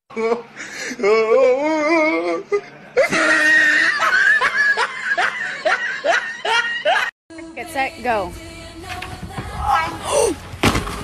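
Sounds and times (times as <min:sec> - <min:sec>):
person laughing hard: 0:02.5 - 0:07.1.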